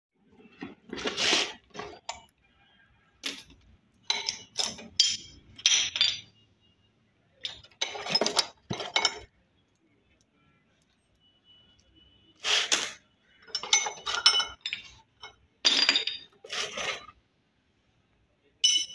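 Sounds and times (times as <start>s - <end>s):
metal chain clinking and rattling: 3.2s - 6.3s, 7.4s - 9.3s, 13.4s - 17.1s, 18.6s - 18.9s.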